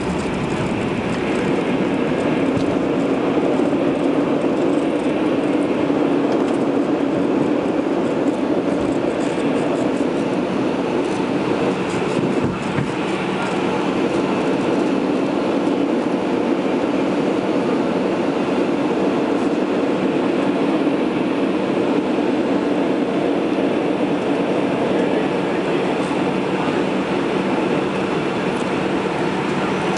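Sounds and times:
jet engine drone: 0.0 - 29.9.

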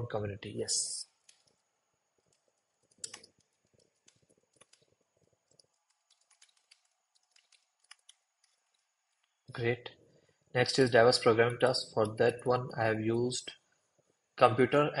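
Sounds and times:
computer keyboard key presses: 5.6 - 8.6.

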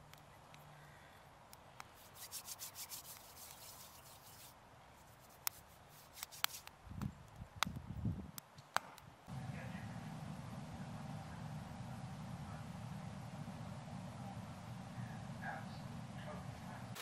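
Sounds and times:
hands rubbing together: 1.8 - 6.7
low rumbles: 9.3 - 17.0.

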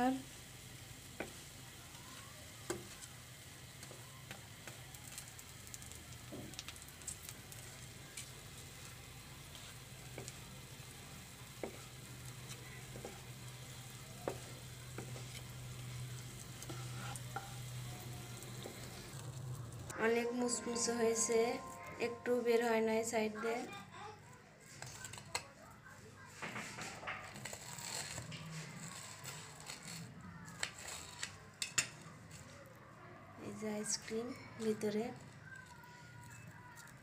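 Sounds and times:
bread sizzling in oil: 0.0 - 19.9
spatula tapping and scraping pan: 11.4 - 17.8.

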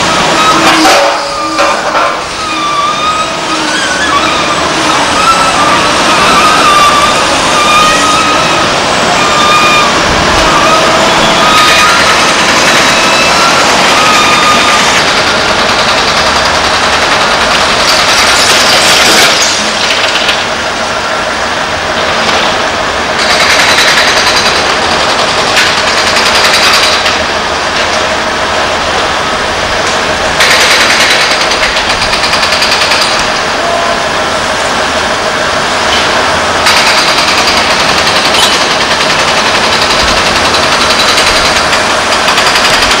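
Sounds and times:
diesel machinery engines clattering: 0.0 - 43.0.

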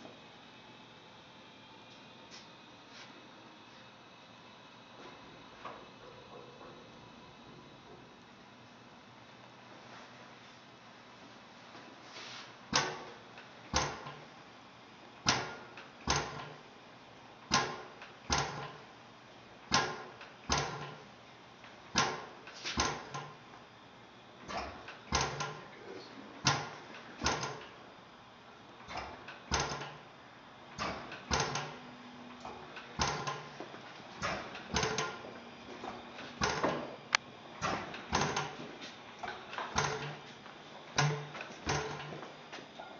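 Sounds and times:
engine-compressor knocking: 17.5 - 18.8, 19.7 - 21.0, 24.5 - 25.6, 26.4 - 27.7, 30.8 - 31.8, 32.4 - 33.5, 34.2 - 37.0, 37.6 - 38.6, 39.2 - 40.3, 41.0 - 42.3.

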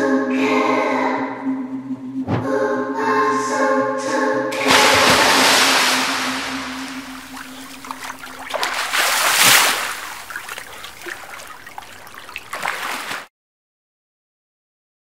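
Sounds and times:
water splashing and trickling: 4.6 - 13.3.

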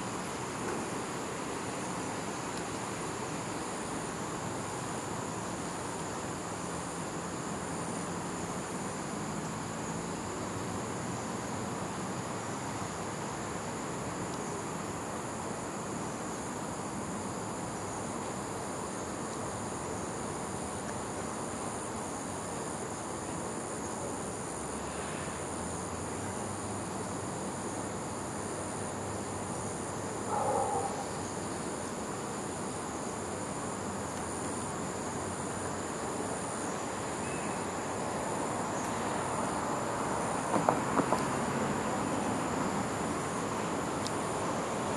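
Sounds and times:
insects droning: 0.0 - 44.9.

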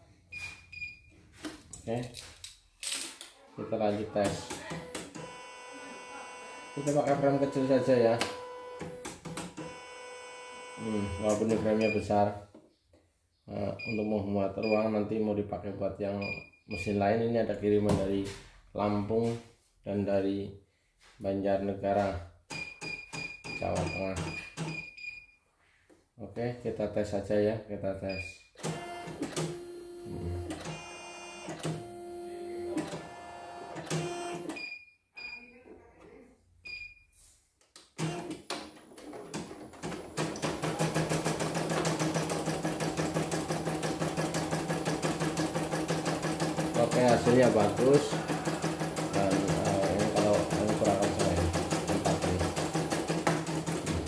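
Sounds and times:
needle stitching rapidly: 40.2 - 54.0.

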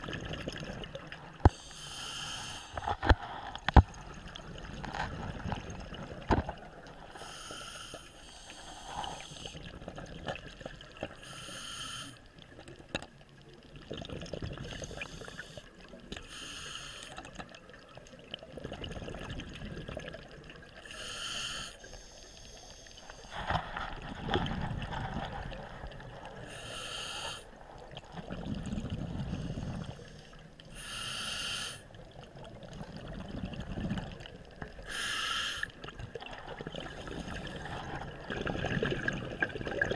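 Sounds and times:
exhaled bubbles burbling: 0.0 - 1.6, 13.6 - 15.3, 17.5 - 20.9, 23.3 - 26.5, 27.7 - 29.9, 32.1 - 34.9, 35.8 - 39.9
scuba regulator inhale hiss: 1.5 - 3.3, 7.1 - 9.6, 11.2 - 12.2, 14.7 - 17.2, 20.8 - 23.4, 26.4 - 27.5, 29.3 - 31.9, 34.8 - 35.8.

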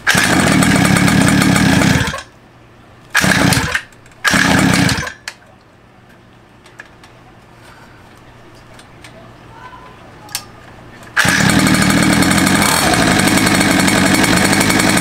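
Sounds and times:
small two-stroke engine firing: 0.0 - 2.3, 3.1 - 5.3, 11.2 - 15.0.

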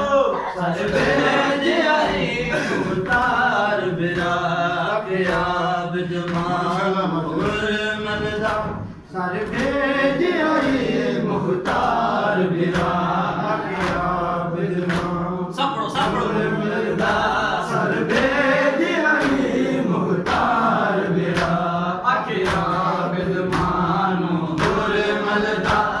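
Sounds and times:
men chanting in unison: 0.0 - 26.0
hands slapping on chests: 0.8 - 7.7, 9.4 - 11.0, 11.6 - 15.3, 18.0 - 26.0.

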